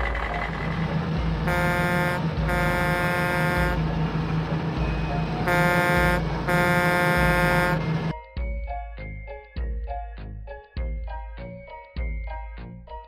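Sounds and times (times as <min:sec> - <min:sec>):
low engine rumble: 0:00.0 - 0:08.2
buzzy truck horn blasts: 0:00.8 - 0:08.1.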